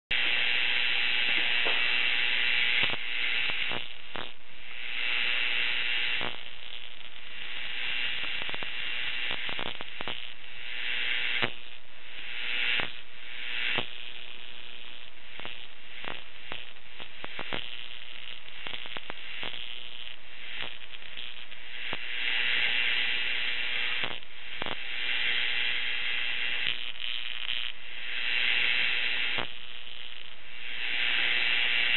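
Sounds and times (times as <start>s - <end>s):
electrical hiss: 0.1s - 31.9s
sparks crackling: 0.1s - 31.9s.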